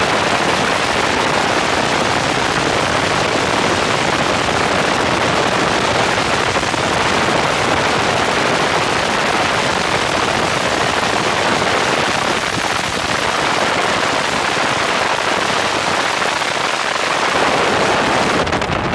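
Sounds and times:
helicopter rotor and engine: 0.0s - 18.7s
wind rushing on microphone: 0.0s - 18.9s.

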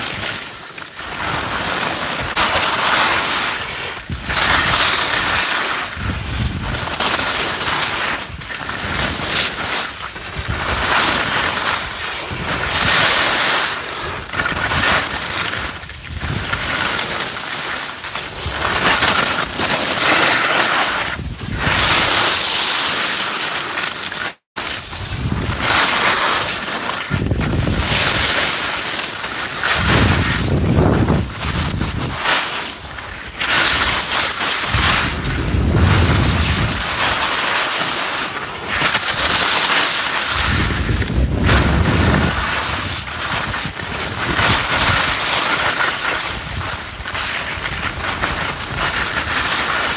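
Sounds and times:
skis scraping on packed snow: 0.0s - 49.9s
wind rushing over microphone: 3.9s - 7.0s, 21.0s - 22.2s, 24.8s - 26.0s, 27.1s - 28.5s, 29.6s - 32.3s, 33.6s - 37.2s, 40.3s - 45.2s.

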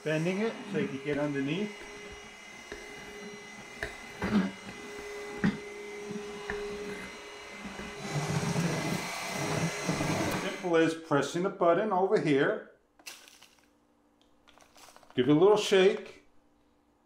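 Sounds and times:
stick vacuum running: 0.0s - 10.8s.

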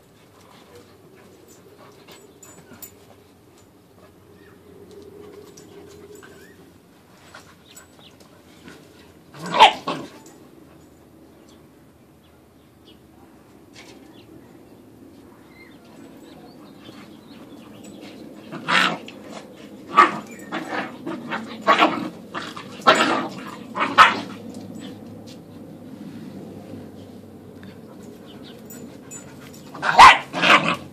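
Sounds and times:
puppies barking: 9.4s - 10.3s, 16.8s - 25.0s, 28.0s - 30.9s.

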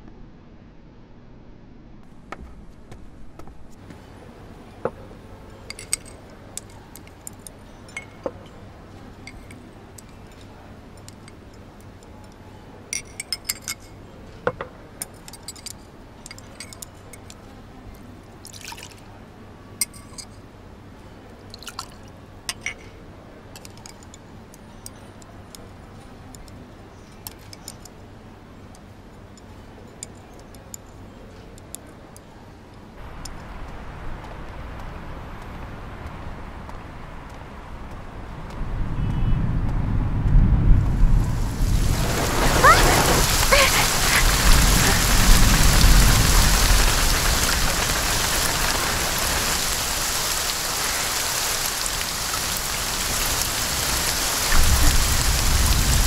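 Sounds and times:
street traffic: 19.1s - 56.0s.

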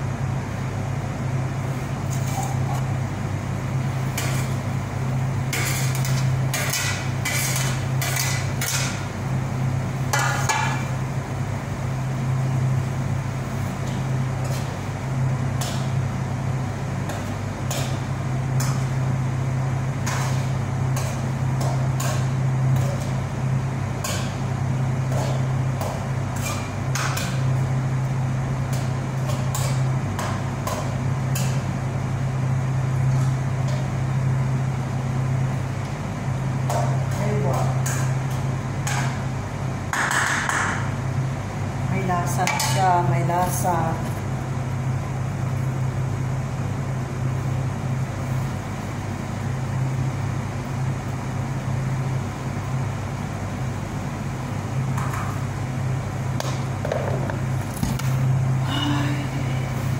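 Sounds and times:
range hood fan humming: 0.0s - 59.9s.

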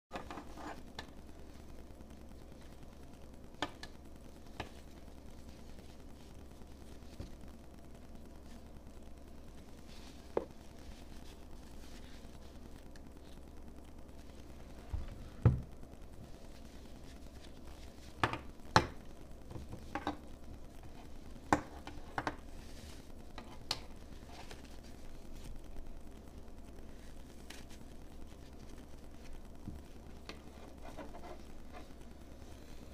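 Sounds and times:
faint low hum: 0.1s - 32.9s
fabric strap rustling: 16.2s - 18.2s, 26.8s - 32.9s.

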